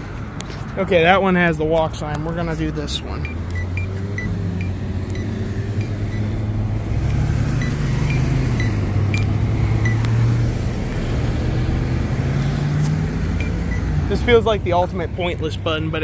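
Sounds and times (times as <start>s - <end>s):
road traffic rumble: 0.0s - 16.0s
crosswalk button beeps: 3.2s - 6.4s, 7.5s - 10.3s, 13.3s - 13.9s.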